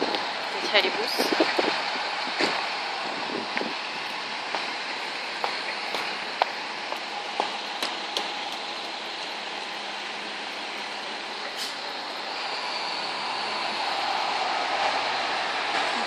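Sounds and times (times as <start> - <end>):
distant traffic hiss: 0.0 - 16.0
footsteps clicking on pavement: 5.4 - 9.4.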